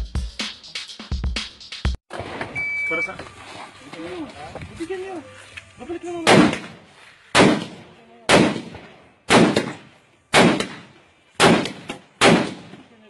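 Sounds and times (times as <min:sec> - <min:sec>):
rifle shots with echo: 0:06.2 - 0:12.9.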